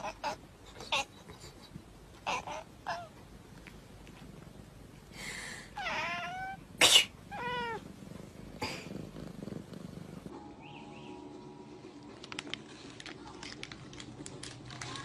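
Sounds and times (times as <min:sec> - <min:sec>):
cat meowing: 0:05.8 - 0:06.7, 0:07.3 - 0:07.8.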